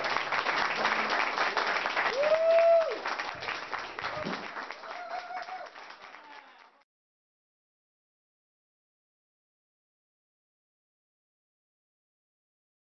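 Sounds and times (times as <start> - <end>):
crowd cheering calls: 0.0 - 6.8
audience applauding: 0.0 - 6.9.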